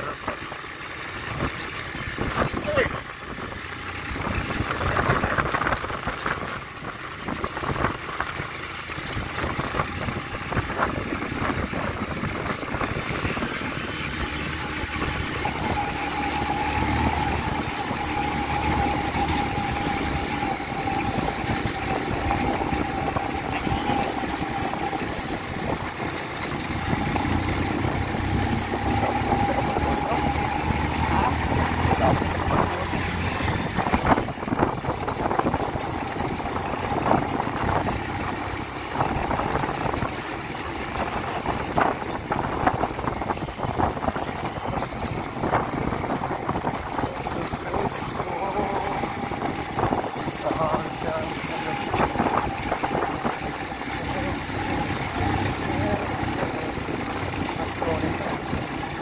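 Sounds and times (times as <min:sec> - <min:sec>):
motorcycle engine running: 0:00.0 - 0:59.0
knocks and rattles over stones: 0:03.7 - 0:28.2.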